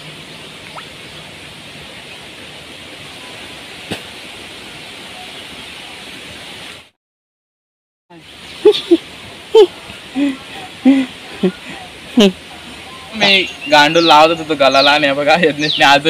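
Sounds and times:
river rushing: 0:00.0 - 0:06.9.

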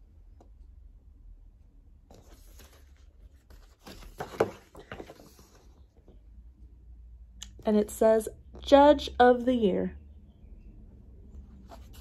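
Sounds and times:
paper pages rustling: 0:02.1 - 0:05.9, 0:11.6 - 0:12.0.

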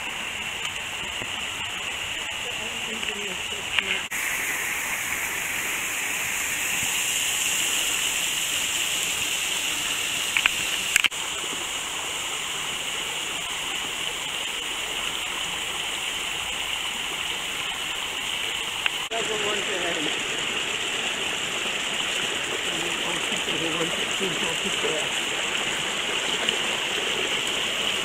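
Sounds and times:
stream splashing over boulders: 0:00.0 - 0:28.0
sharp clicks: 0:10.3 - 0:11.2.

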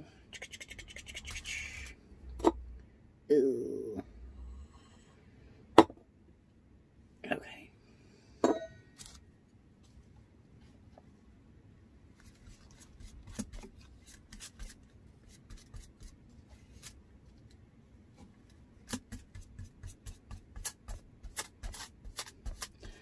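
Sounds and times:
paintbrush bristles scratching: 0:00.4 - 0:01.9, 0:19.2 - 0:22.8.

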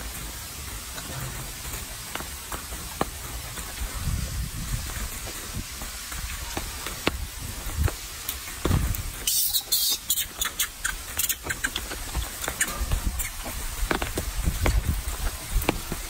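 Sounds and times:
monkey chewing wet clicks: 0:09.3 - 0:15.8.

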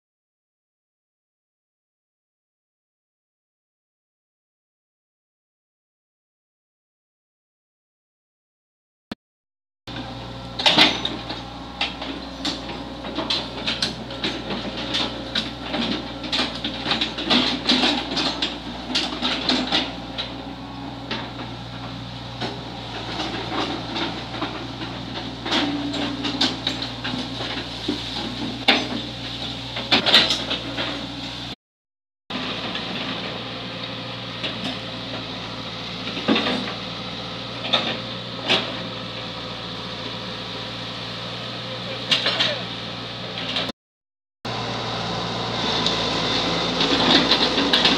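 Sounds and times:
excavator diesel engine running: 0:09.9 - 0:31.6, 0:32.3 - 0:43.7, 0:44.5 - 0:47.9
metallic clanks of excavator bucket: 0:10.5 - 0:20.4, 0:22.4 - 0:31.0, 0:42.0 - 0:42.7.

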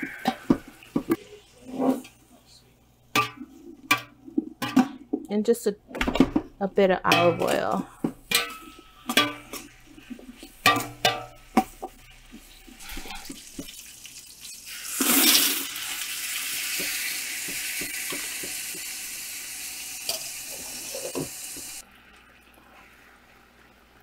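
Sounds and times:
spoon knocking in enamel pot: 0:03.1 - 0:05.0, 0:07.1 - 0:09.7, 0:10.6 - 0:12.0
tap water running into pot: 0:10.4 - 0:22.7.

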